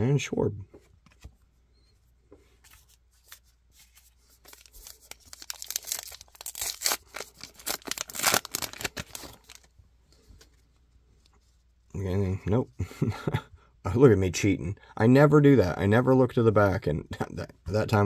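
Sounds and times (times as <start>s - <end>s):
card wrapper crinkling and tearing: 2.7s - 9.7s.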